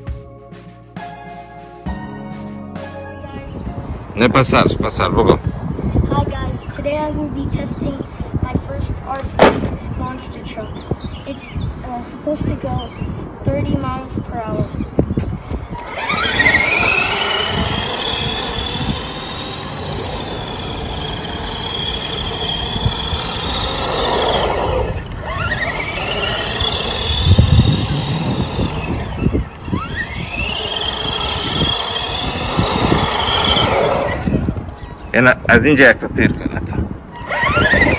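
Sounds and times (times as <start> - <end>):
tyre noise on asphalt: 15.0 - 35.2
electric motor whining: 15.6 - 35.0, 37.0 - 37.9.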